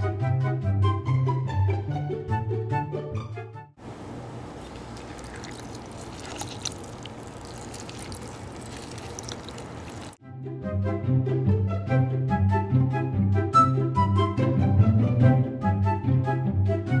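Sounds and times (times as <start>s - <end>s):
water running: 3.8s - 10.2s.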